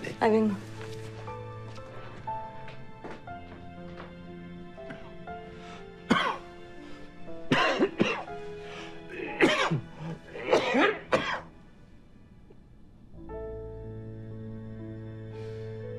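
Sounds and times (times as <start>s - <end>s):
soft background music: 0.0s - 15.9s
man coughing: 6.1s - 6.4s, 7.5s - 8.3s, 9.1s - 11.5s.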